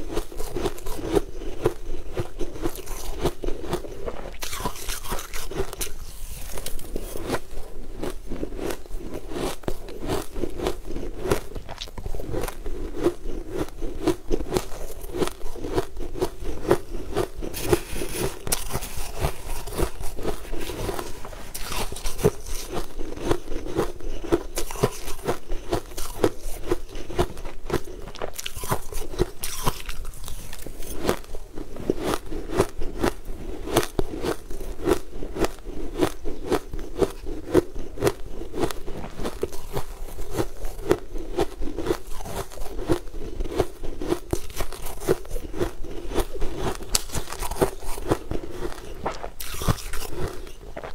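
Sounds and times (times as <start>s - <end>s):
chewing crushed ice: 0.0s - 50.9s.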